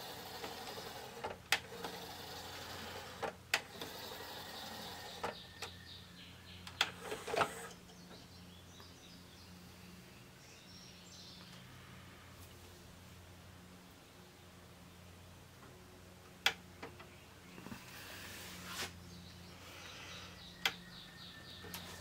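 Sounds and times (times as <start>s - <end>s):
cd changer tray motor turning: 0.0s - 5.7s
faint steady hum: 0.0s - 22.0s.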